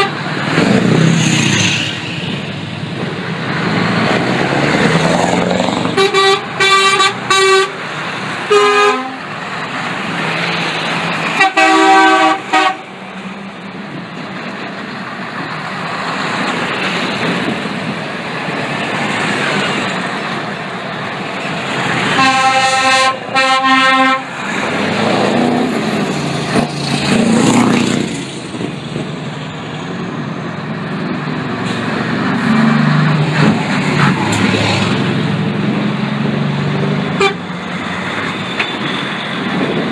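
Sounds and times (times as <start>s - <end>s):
truck horn blasts: 0.0s - 0.3s, 5.9s - 7.8s, 8.5s - 9.2s, 11.4s - 12.9s, 22.1s - 24.4s, 37.2s - 37.4s
heavy trucks rolling past: 0.0s - 39.9s.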